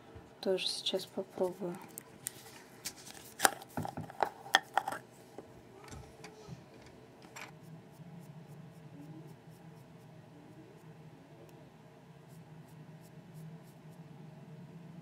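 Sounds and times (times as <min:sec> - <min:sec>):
plastic jar lid clicks and knocks: 0:03.4 - 0:05.0.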